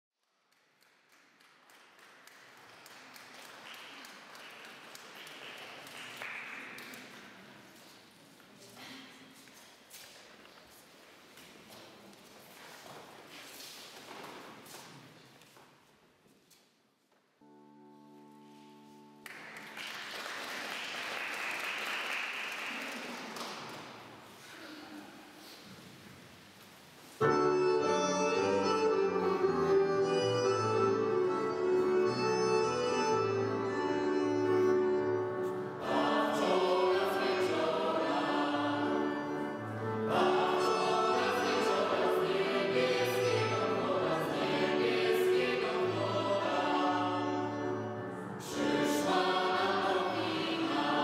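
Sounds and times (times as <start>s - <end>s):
audience applauding: 0.5s - 7.4s, 19.2s - 24.1s.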